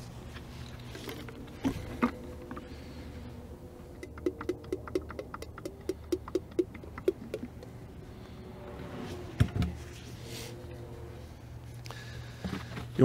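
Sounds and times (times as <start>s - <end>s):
oil glugging from bucket: 0.6s - 3.0s.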